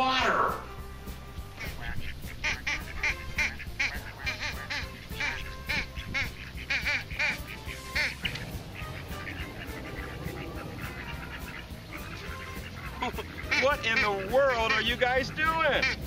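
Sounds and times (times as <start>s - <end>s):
duck quacking: 1.6s - 16.0s.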